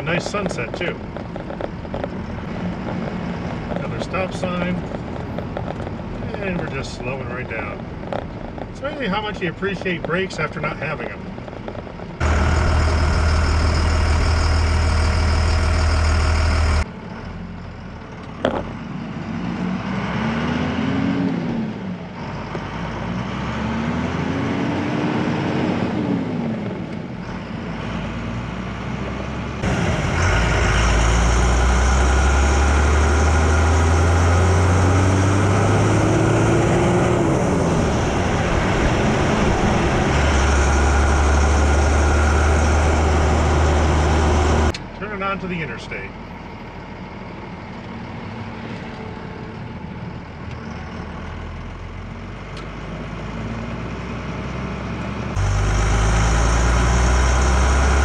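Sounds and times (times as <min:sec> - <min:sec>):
diesel truck accelerating: 0:00.0 - 0:58.0
loud low drone: 0:12.2 - 0:16.9, 0:29.6 - 0:44.7, 0:55.3 - 0:58.0.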